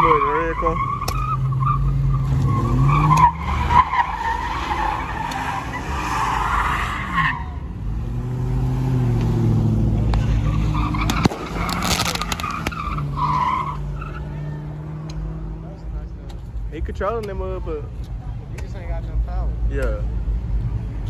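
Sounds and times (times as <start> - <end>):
car engine revving: 0.0 - 17.1
car tyres squealing: 0.0 - 17.4
sharp crack: 10.0 - 13.0.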